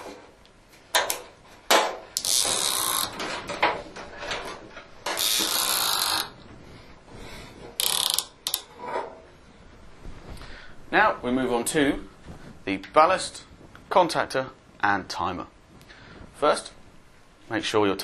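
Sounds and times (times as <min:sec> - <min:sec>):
hardware clicks and knocks: 0:00.0 - 0:06.4
cord running through ratchets: 0:02.2 - 0:03.6, 0:05.0 - 0:06.4, 0:07.8 - 0:08.7.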